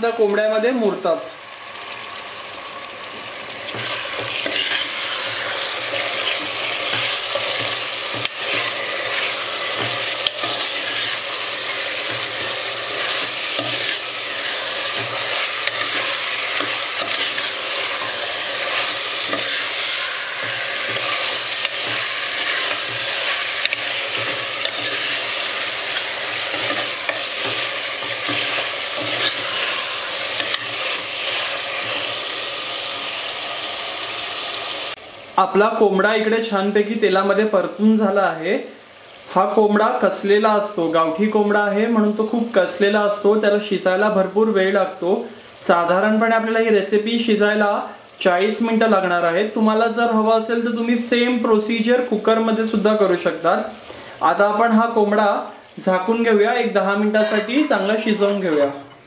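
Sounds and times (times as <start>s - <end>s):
meat sizzling in hot oil: 0.0s - 58.6s.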